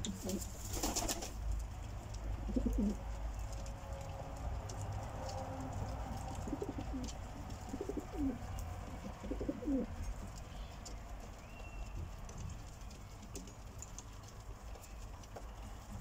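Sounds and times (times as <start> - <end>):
pigeons cooing: 2.2 - 3.2, 4.9 - 10.2.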